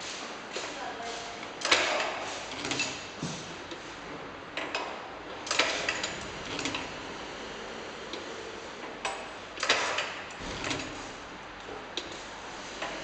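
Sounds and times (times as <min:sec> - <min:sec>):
labelling machine clicks and knocks: 0:09.0 - 0:11.1.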